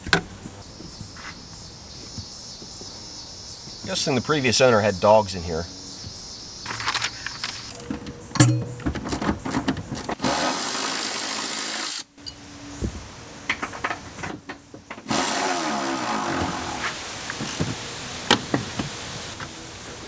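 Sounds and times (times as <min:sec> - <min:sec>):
clicks and knocks of parts: 0:06.7 - 0:10.2
cordless power tool driving bolts: 0:08.4 - 0:12.1, 0:14.9 - 0:16.8.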